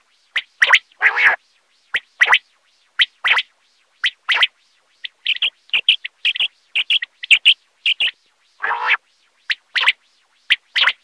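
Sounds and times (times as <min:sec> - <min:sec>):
quail calling: 0:00.4 - 0:01.4, 0:04.0 - 0:11.0.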